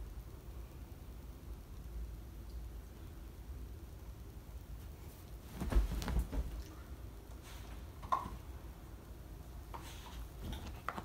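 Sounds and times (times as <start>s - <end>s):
dog pawing through blankets: 5.4s - 6.7s.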